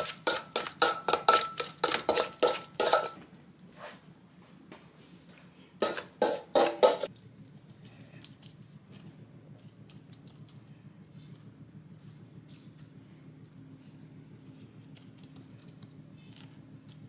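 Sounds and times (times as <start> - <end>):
low steady hum: 0.0 - 17.0
fingers patting leaves in bowl: 14.4 - 17.0.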